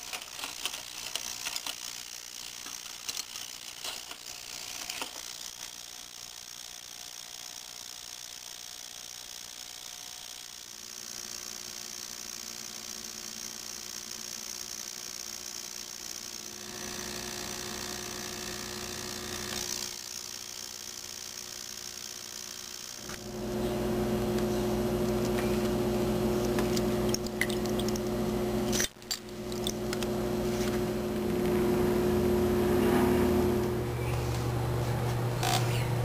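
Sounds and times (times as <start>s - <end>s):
ultrasonic cleaner buzzing hum: 0.0s - 36.0s
sharp clicks: 26.4s - 30.1s.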